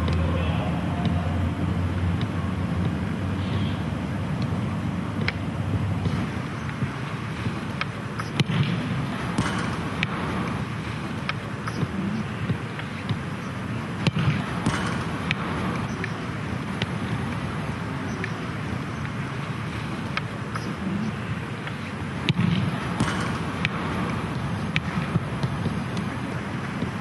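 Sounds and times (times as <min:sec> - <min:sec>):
steady background rumble: 0:00.0 - 0:27.0
foot kicking football: 0:06.0 - 0:13.4, 0:14.0 - 0:17.5, 0:21.6 - 0:27.0.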